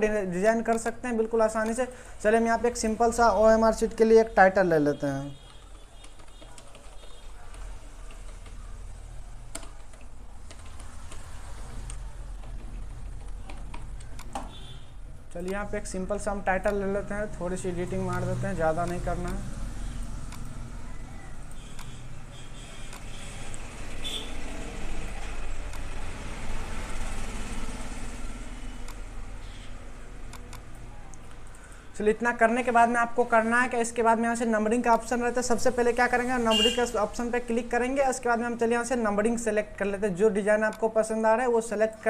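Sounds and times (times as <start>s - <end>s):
keyboard keys clicking: 5.5s - 14.4s
sharp clicks: 9.5s - 14.7s, 16.6s - 17.0s, 18.0s - 19.5s, 20.2s - 20.6s, 21.4s - 22.0s, 22.8s - 23.6s, 30.3s - 31.7s.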